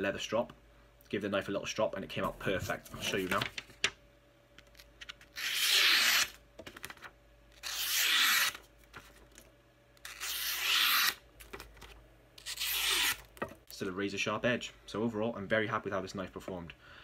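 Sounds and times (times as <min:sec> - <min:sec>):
knife slicing paper: 0:05.4 - 0:06.4, 0:07.6 - 0:08.6, 0:10.1 - 0:11.2, 0:12.4 - 0:13.3.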